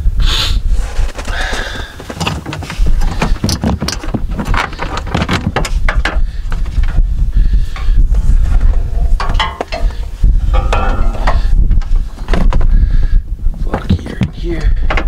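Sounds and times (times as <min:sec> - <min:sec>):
steady low rumble: 0:00.0 - 0:15.0
metal clicks knocks and rattles: 0:02.0 - 0:07.0, 0:08.6 - 0:12.7, 0:13.6 - 0:15.0.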